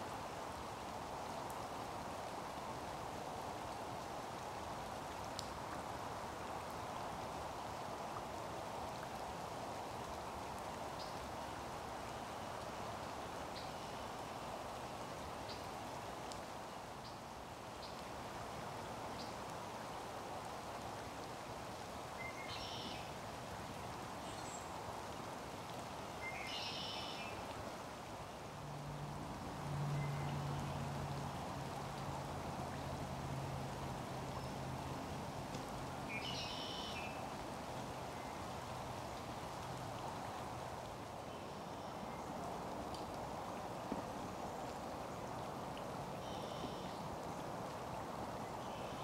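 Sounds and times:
faint high ticks: 5.3 - 5.6.

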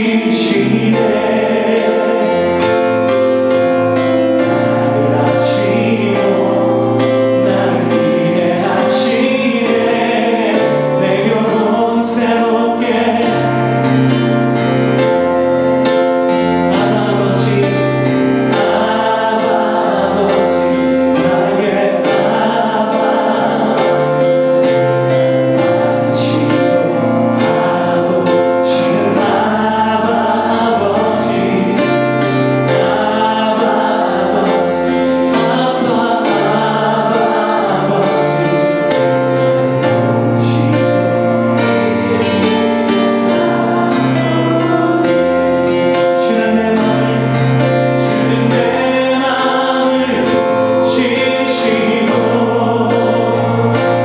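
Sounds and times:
man singing into a microphone: 0.0 - 54.0
sustained keyboard accompaniment: 0.0 - 54.0.

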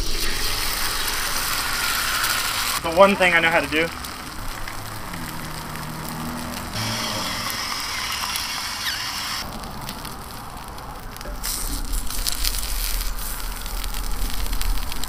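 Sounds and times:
egg sizzling and crackling: 0.0 - 15.0
spatula scraping griddle: 6.5 - 9.4.

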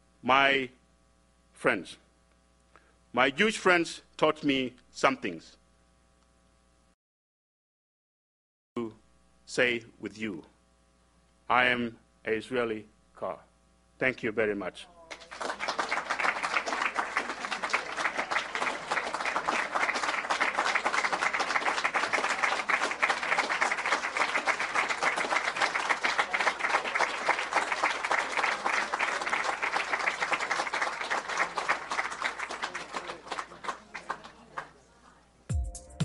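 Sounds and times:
audience applauding: 15.1 - 34.8.

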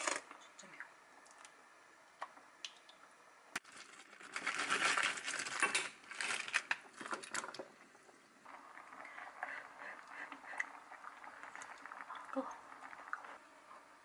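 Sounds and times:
crackling and splashing: 3.6 - 13.4.

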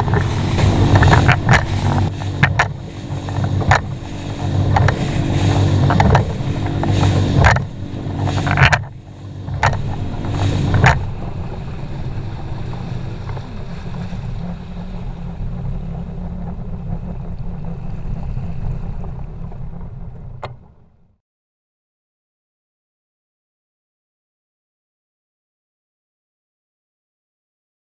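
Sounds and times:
hull slamming into waves: 0.0 - 20.9
water washing along hull: 0.0 - 21.1
outboard engine running: 0.0 - 21.2.

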